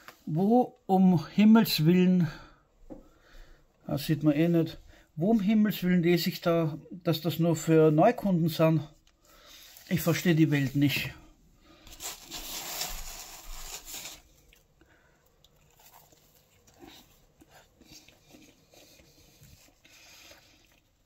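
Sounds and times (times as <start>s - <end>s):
rustling scrape of pizza slice: 11.9s - 14.4s
quiet chewing: 14.3s - 21.0s.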